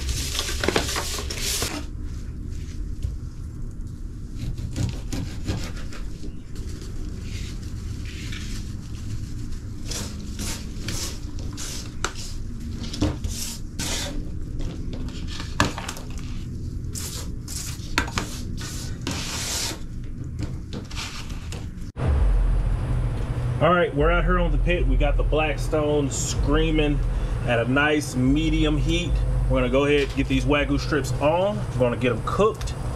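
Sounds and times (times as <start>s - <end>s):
steady low hum: 21.5s - 32.9s.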